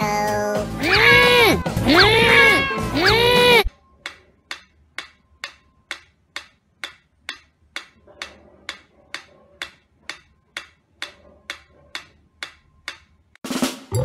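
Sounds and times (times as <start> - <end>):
metronome ticking: 4.0 - 13.4.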